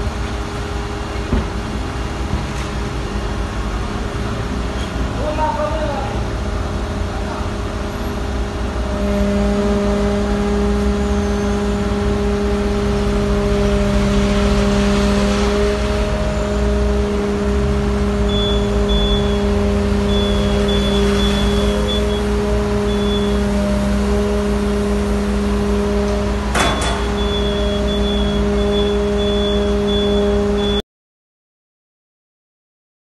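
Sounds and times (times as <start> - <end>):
engine and hydraulic drive hum: 0.0 - 30.8.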